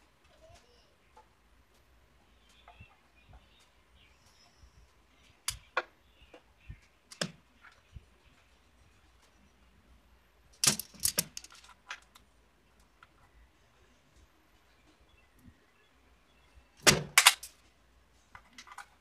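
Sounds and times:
metallic clicks and clinks: 10.6s - 12.2s.

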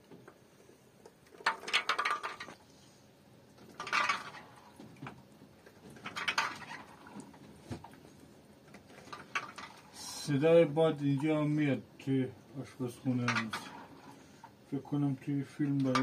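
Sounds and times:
chickpeas dropping into metal pot: 3.7s - 4.5s.

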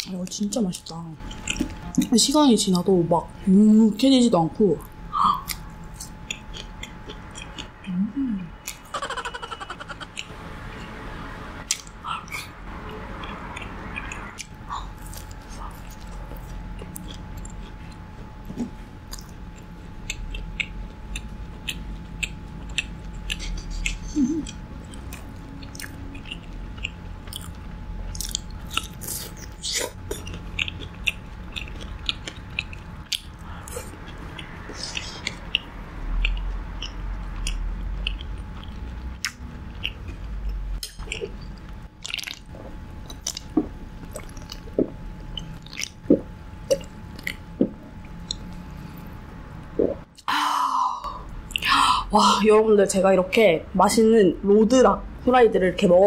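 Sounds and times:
crunchy food chewing: 1.2s - 2.0s, 5.4s - 11.0s, 13.1s - 49.1s.

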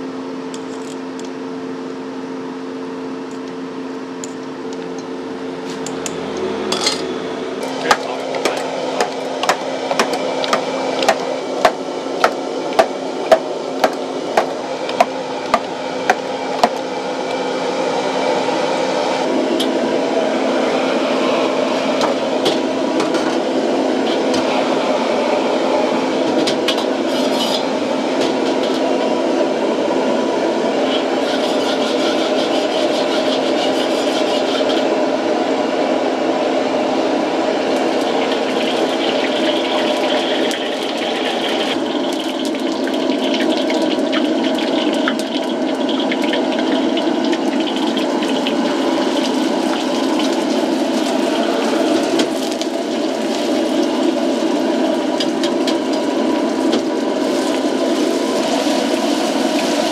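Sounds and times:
gas burner rushing: 4.2s - 59.9s
utensil beating eggs in metal pot: 30.9s - 34.9s, 37.8s - 59.9s.

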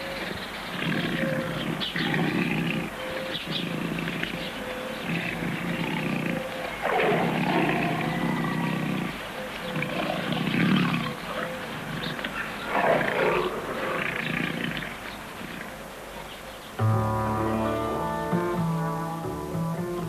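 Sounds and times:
tiger growling: 0.1s - 15.8s
tiger snarls: 0.7s - 15.8s.

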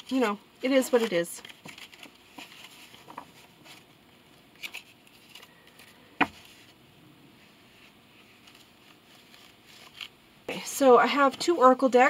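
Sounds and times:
cards rustling: 0.0s - 6.7s, 7.6s - 10.2s.

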